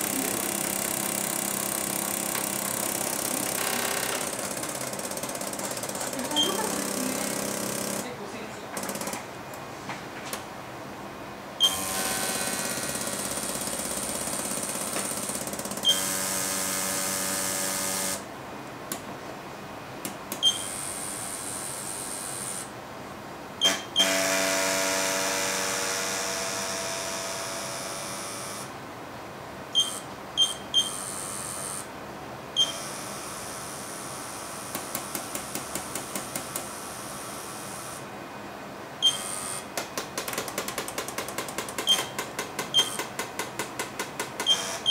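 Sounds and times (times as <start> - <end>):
pneumatic valves clicking: 39.0 - 44.9.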